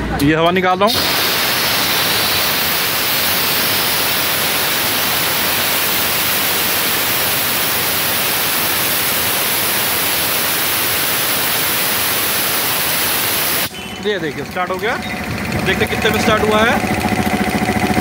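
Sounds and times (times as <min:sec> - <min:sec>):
compressed air hissing: 0:00.9 - 0:14.8.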